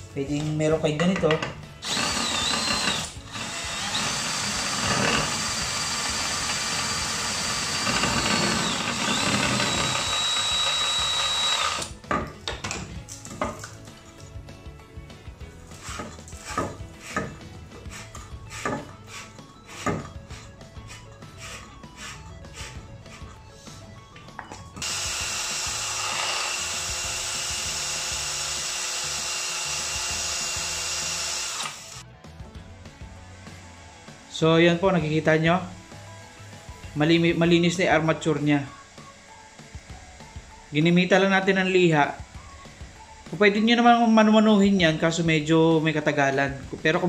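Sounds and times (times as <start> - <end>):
soft background music: 0.0 - 47.0
cordless drill whining: 1.8 - 12.0, 24.8 - 32.1
sandpaper sanding hiss: 17.9 - 22.8.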